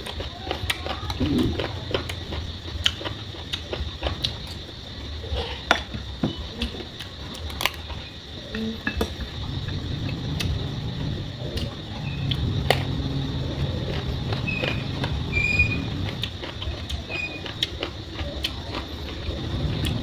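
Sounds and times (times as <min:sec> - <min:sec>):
chewing raw vegetables: 0:00.0 - 0:05.7, 0:09.5 - 0:20.0.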